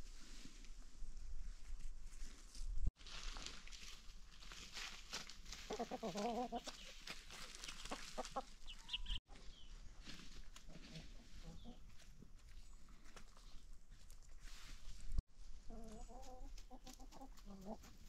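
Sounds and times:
chickens clucking: 5.6 - 9.8, 10.6 - 13.2, 15.6 - 18.0.

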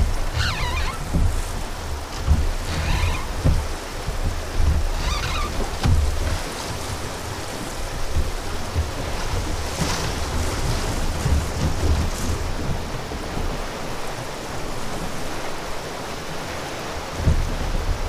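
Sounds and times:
river water rushing: 0.0 - 18.0
wind buffeting the microphone: 0.0 - 18.0.

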